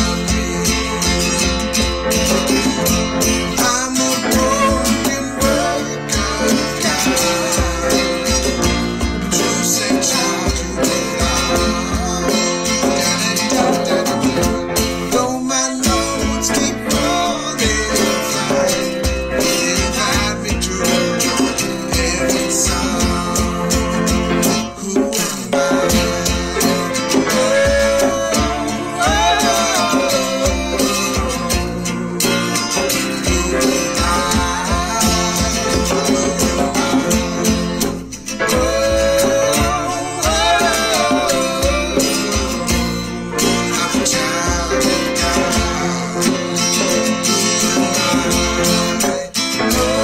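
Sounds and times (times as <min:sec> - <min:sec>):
acoustic guitar strumming: 0:00.0 - 0:50.0
hand drum beat: 0:00.0 - 0:50.0
man singing: 0:00.0 - 0:50.0
piano: 0:00.0 - 0:50.0
woman singing: 0:03.5 - 0:08.7, 0:24.8 - 0:37.6, 0:38.4 - 0:46.6, 0:49.6 - 0:50.0.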